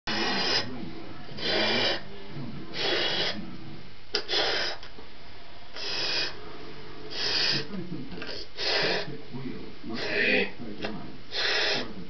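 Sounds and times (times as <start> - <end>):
breath blowing up balloon: 0.1 - 0.7, 1.4 - 2.0, 2.7 - 3.4, 4.2 - 4.9, 5.8 - 6.4, 7.1 - 7.7, 8.3 - 9.1, 11.3 - 11.9.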